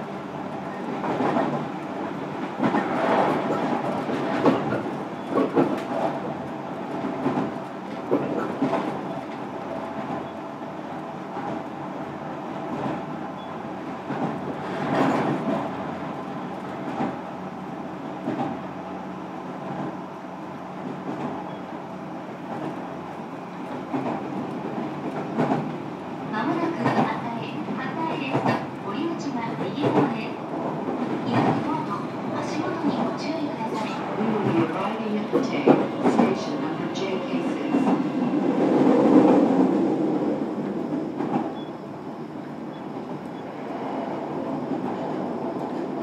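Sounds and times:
train wheels on rail: 0:00.0 - 0:46.0
clacks over rail joints: 0:02.4 - 0:10.3, 0:23.8 - 0:25.8, 0:26.4 - 0:28.7.

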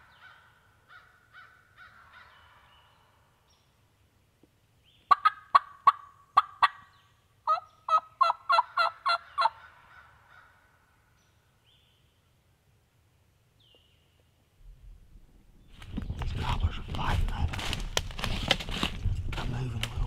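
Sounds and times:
turkey gobbling: 0:05.1 - 0:10.6.

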